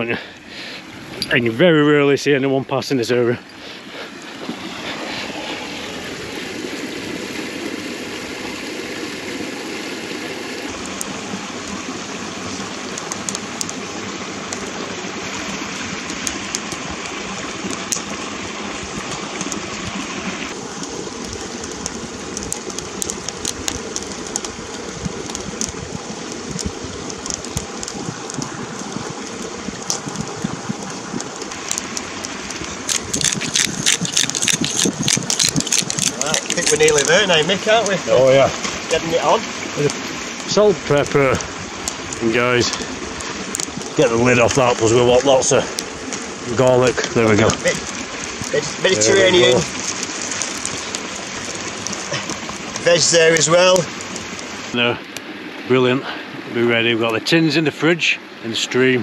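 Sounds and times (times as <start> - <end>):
stream water running over stones: 0.0 - 59.0
sharp clicks: 31.2 - 37.1.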